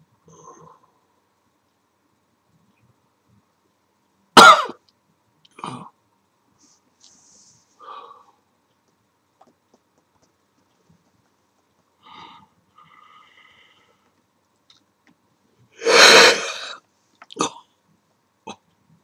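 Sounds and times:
sharp burst of breath: 15.8s - 16.8s.

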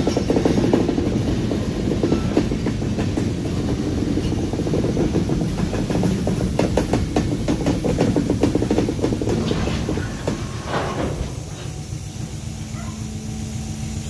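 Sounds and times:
clicks and clanks of wheels: 0.0s - 1.2s, 2.0s - 11.9s
train wheels rumbling on track: 0.0s - 14.0s.

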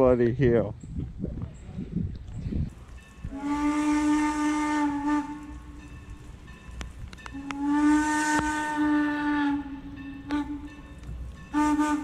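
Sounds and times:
steam locomotive whistle blasts: 3.2s - 6.0s, 7.3s - 12.0s.

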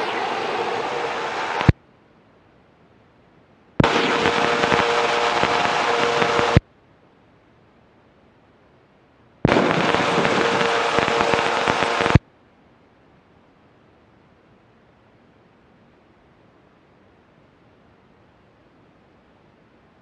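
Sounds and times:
engine and wind noise: 0.0s - 1.8s, 3.8s - 6.6s, 9.4s - 12.2s.

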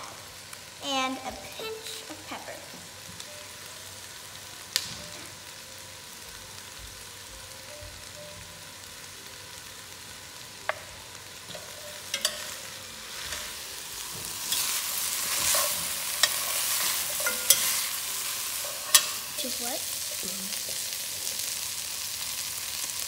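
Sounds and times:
meat and vegetables sizzling: 0.0s - 23.0s
spoon stirring and scraping pot: 11.5s - 20.9s.

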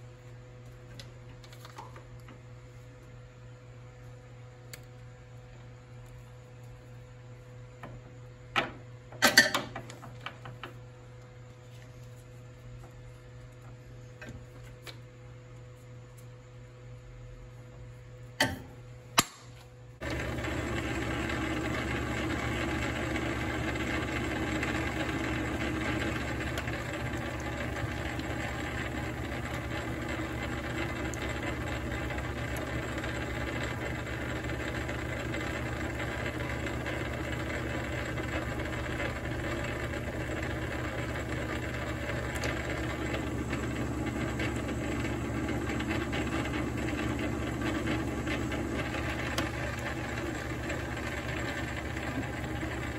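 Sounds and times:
lathe motor running: 20.0s - 52.9s.

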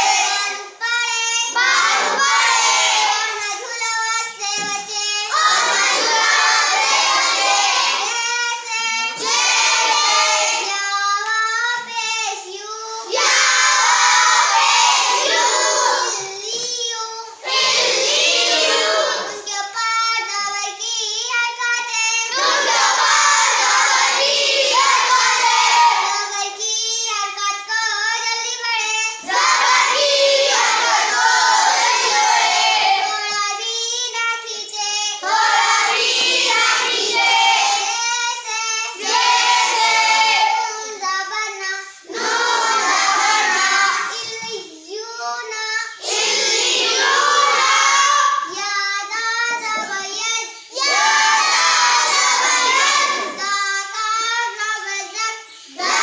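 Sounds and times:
child chanting: 0.0s - 56.0s.

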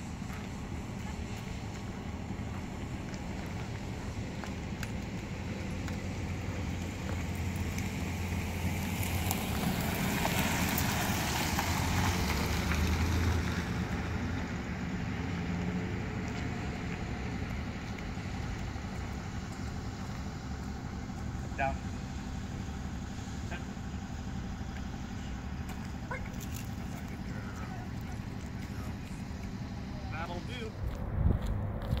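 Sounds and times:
steady low hum: 0.0s - 9.6s
vehicle passing: 0.0s - 32.0s.

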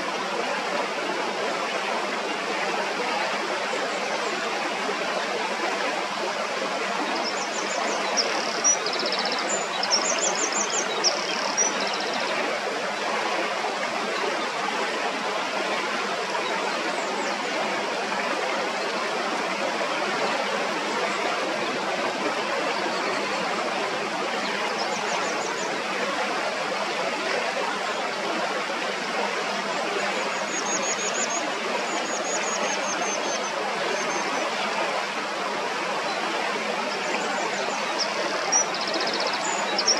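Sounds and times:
stream running over stones: 0.0s - 39.9s.

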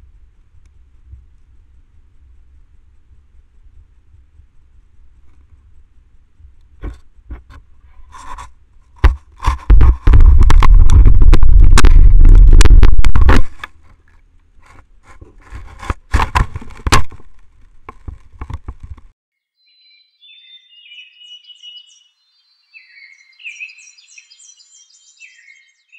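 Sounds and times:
bird-like chirps: 19.5s - 25.9s.

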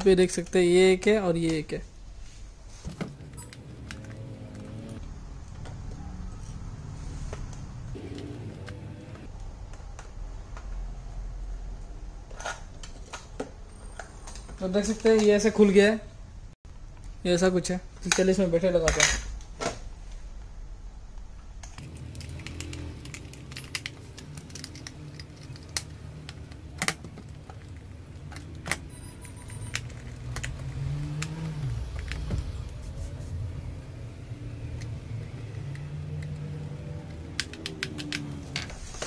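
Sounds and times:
plastic clicks and rattles: 21.6s - 28.8s, 35.6s - 38.7s.

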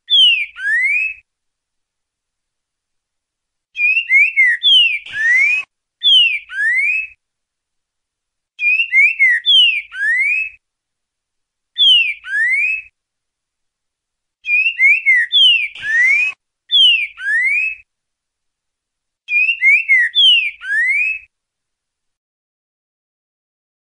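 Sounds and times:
bird singing whistled notes: 0.0s - 1.3s, 3.8s - 7.2s, 8.6s - 10.6s, 11.8s - 13.0s, 14.4s - 17.9s, 19.3s - 21.3s.

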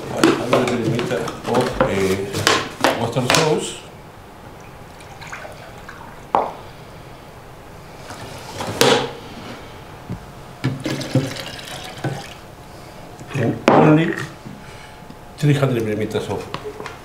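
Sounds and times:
liquid pouring into glass: 4.6s - 6.2s, 10.8s - 12.4s.

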